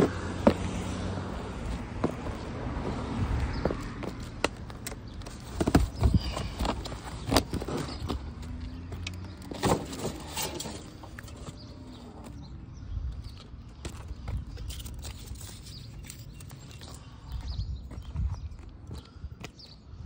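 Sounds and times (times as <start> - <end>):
footsteps on concrete: 0.0 - 9.0, 15.9 - 19.8
boots stomping on cardboard: 2.0 - 3.0, 5.5 - 7.7.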